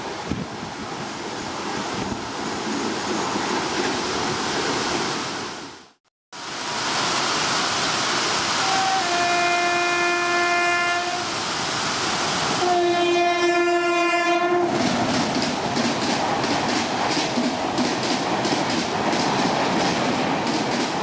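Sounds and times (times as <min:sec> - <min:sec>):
heavy rain: 0:04.2 - 0:18.5
train horn blasts: 0:08.6 - 0:11.3, 0:12.6 - 0:14.8.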